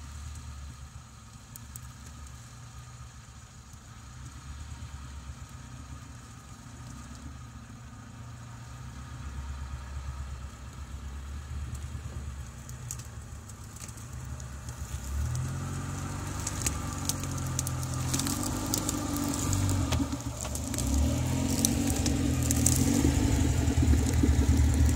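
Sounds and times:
vehicle engine at low revs: 0.0 - 24.9
twigs snapping under tyres: 11.6 - 24.9.

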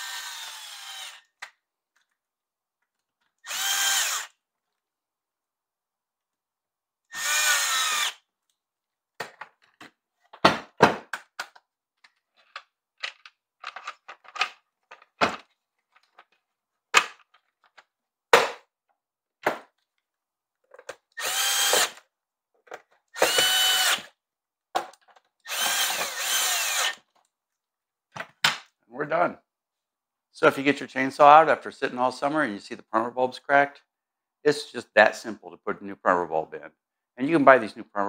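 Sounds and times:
cordless drill driving screws: 0.0 - 1.3, 3.4 - 4.4, 7.1 - 8.2, 21.2 - 22.0, 23.1 - 24.2, 25.4 - 27.1
plastic parts clicking and knocking: 9.2 - 18.6, 19.4 - 23.6, 24.7 - 26.3.

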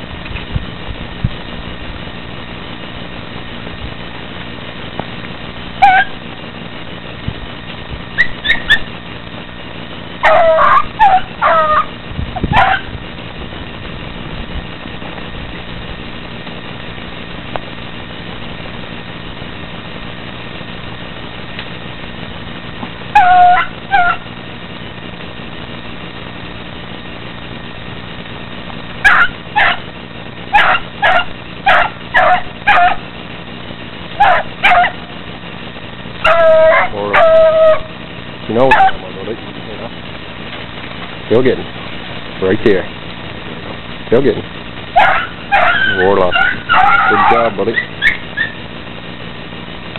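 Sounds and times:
steady low hum: 0.0 - 49.9
puppies barking and yelping: 5.8 - 6.2, 8.1 - 9.0, 10.2 - 12.9, 23.1 - 24.3, 29.1 - 29.8, 30.5 - 33.1, 34.2 - 35.0, 36.2 - 38.0, 38.6 - 39.0, 44.9 - 48.6.

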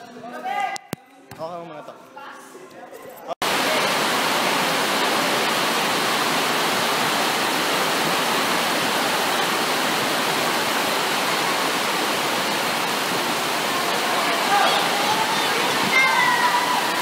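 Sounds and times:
heavy rain pouring: 3.4 - 17.0.

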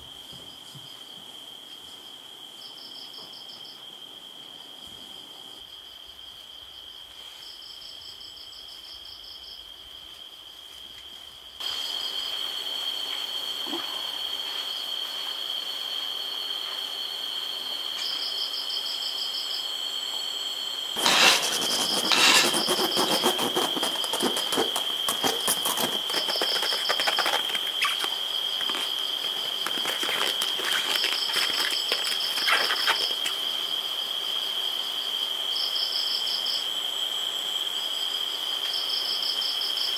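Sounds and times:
crickets trilling: 0.0 - 39.9
crackling and rustling: 21.0 - 33.4
pulsed insect chirps: 21.0 - 33.7.

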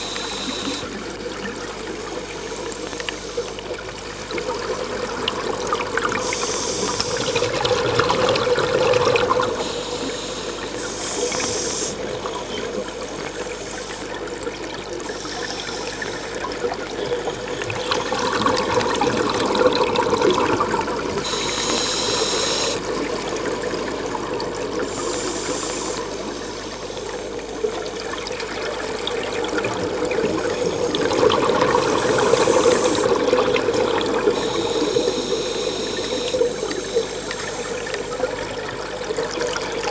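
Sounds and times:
steady hum: 0.0 - 39.9
regulator breathing hiss: 6.2 - 7.5, 9.5 - 12.2, 15.0 - 16.5, 21.2 - 22.9, 24.8 - 27.6, 32.0 - 33.3, 34.3 - 38.2.

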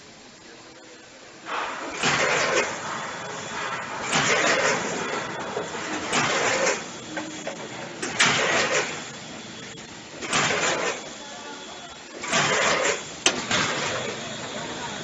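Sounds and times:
hopper gates clacking: 1.4 - 9.2.

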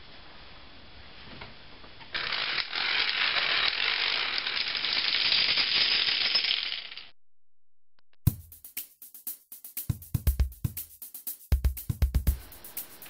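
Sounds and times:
dominoes toppling: 2.1 - 7.1.

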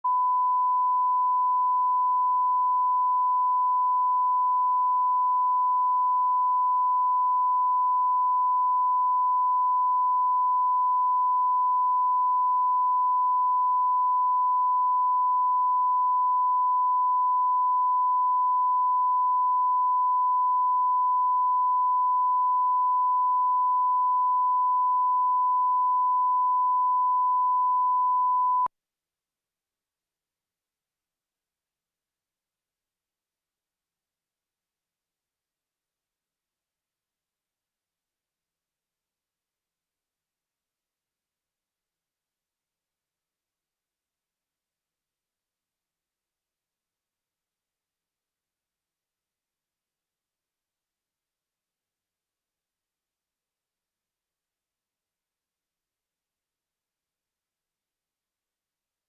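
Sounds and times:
steady sine-wave tone: 0.0 - 28.7.

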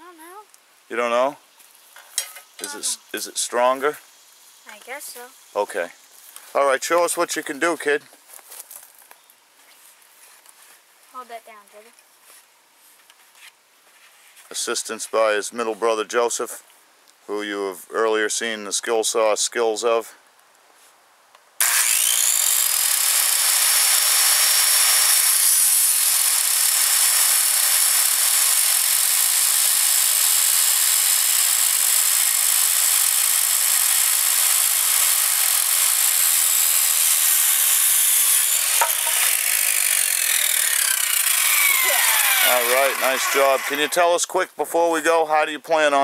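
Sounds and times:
circular saw cutting wood: 21.6 - 44.1.

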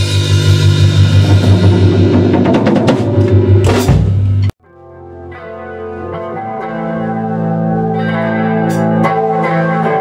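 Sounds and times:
drum fill and cymbal crash: 0.0 - 4.5
rock band playing loudly: 0.0 - 10.0
quiet electric guitar: 4.6 - 10.0.

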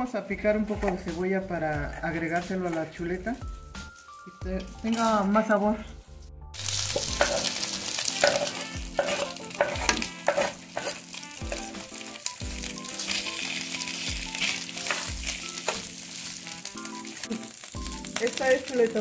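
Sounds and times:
meat and onion sizzling: 0.0 - 19.0
metal spoon scraping pot: 6.9 - 11.7.

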